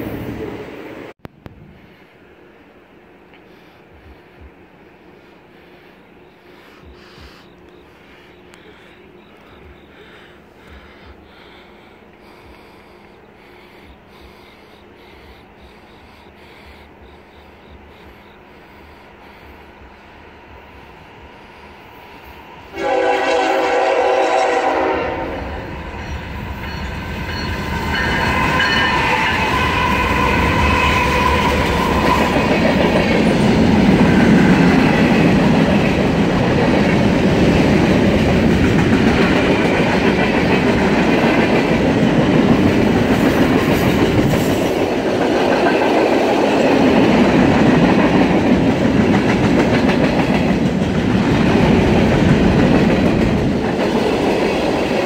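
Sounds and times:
freight train rumble: 0.0 - 55.0
train wheels clacking on rails: 5.4 - 55.0
locomotive horn blast: 22.7 - 25.6.

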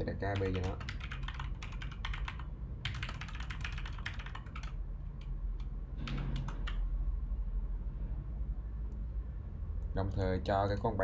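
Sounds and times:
computer keyboard typing: 0.2 - 6.9.

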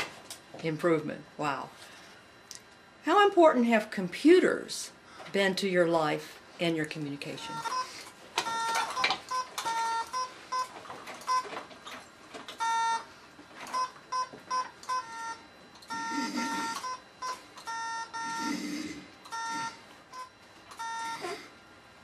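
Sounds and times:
morse code beeps: 7.4 - 11.6, 12.6 - 13.1, 13.7 - 18.6, 19.2 - 21.4.

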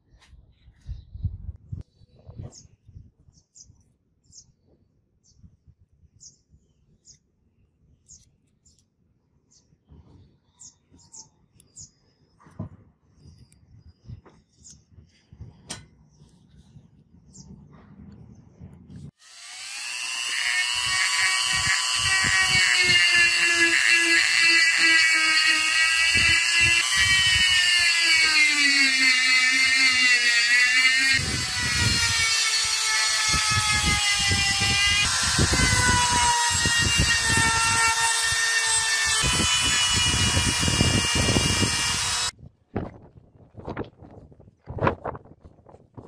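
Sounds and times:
rotary tool motor whine: 19.2 - 42.3
gritty sanding rasp on metal: 19.6 - 42.3.

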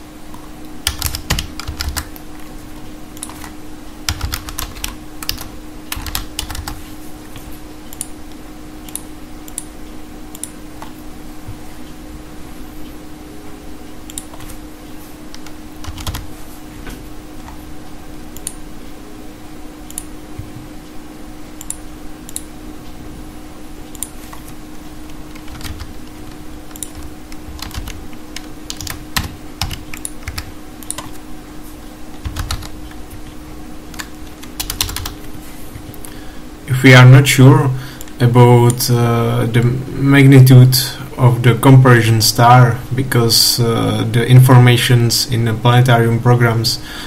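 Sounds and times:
steady low hum: 0.0 - 47.0
keyboard typing: 0.8 - 2.2, 3.2 - 6.8, 15.3 - 16.3, 23.9 - 31.2, 32.2 - 35.2.

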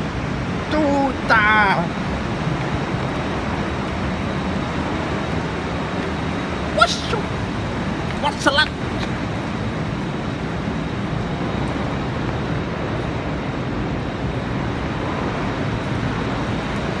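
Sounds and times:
waterfall rushing: 2.9 - 10.1.

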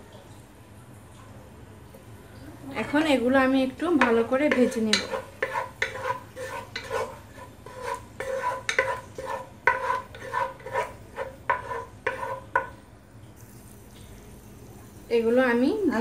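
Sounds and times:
light sizzle of frying: 0.0 - 16.0
wooden spatula scraping pan: 4.0 - 12.7.

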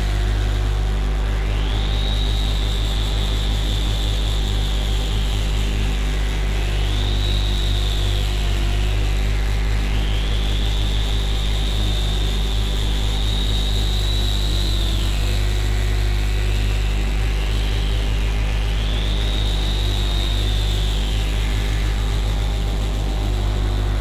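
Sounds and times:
noise instrument droning: 0.0 - 24.0
whistling filter sweep: 18.7 - 24.0.

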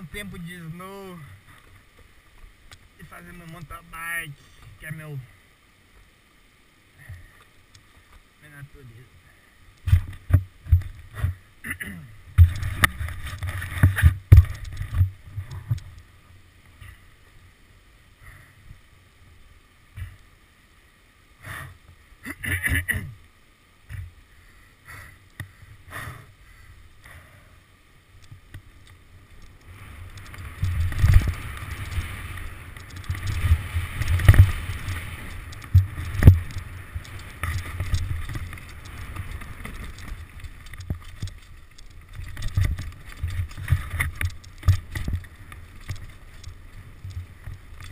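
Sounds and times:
wind on microphone: 29.7 - 47.9.

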